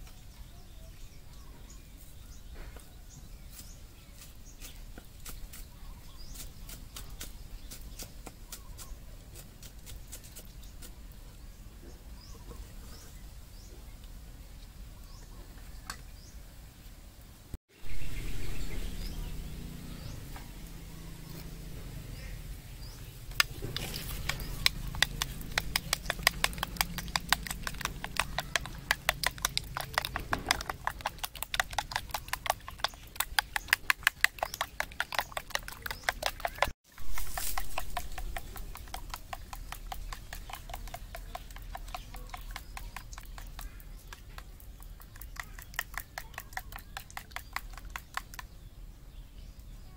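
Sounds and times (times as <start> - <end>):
metal spoon beating eggs in bowl: 23.3 - 48.5.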